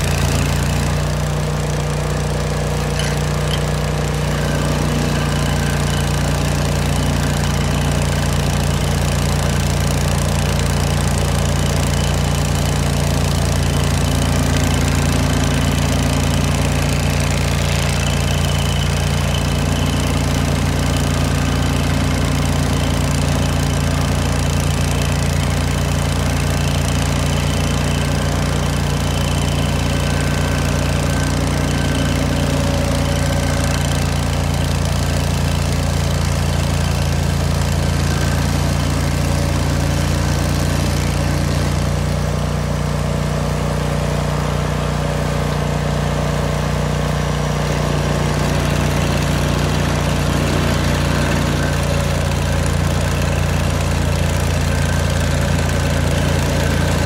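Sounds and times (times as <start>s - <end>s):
stump grinder engine running: 0.0s - 57.0s.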